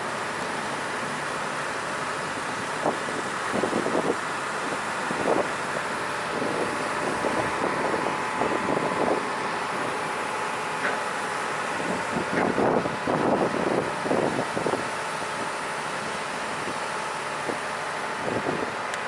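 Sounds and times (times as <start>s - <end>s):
ferry engine running: 0.0s - 19.0s
wind on microphone: 6.3s - 9.9s, 11.8s - 14.9s.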